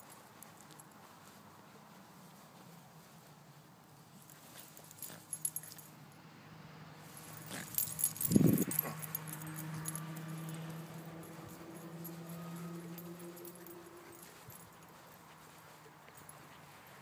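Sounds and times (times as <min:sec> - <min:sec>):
small metal pieces jingling: 0:07.3 - 0:14.9.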